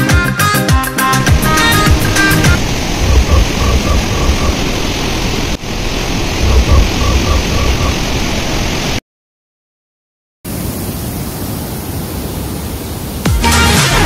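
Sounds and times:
low rumbling: 1.0 - 8.9.

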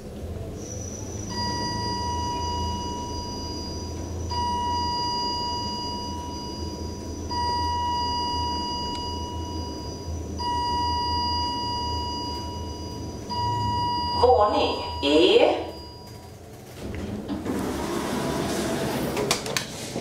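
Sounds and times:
elevator travel hum: 0.0 - 20.0
steady electronic tone: 0.6 - 16.4.

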